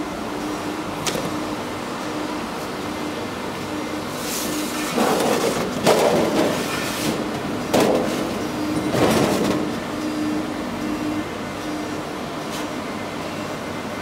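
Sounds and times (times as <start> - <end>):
machine hum with pulsing tone: 7.2 - 14.0.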